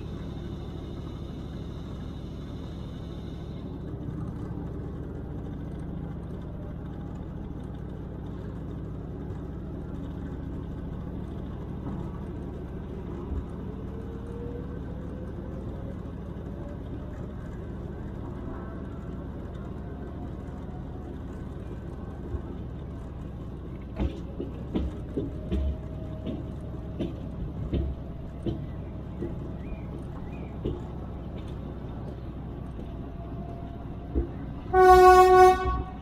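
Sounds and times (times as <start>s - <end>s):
diesel locomotive rumbling: 0.0s - 36.0s
rising engine whine: 0.0s - 36.0s
sharp knocks and clanks: 23.9s - 34.6s.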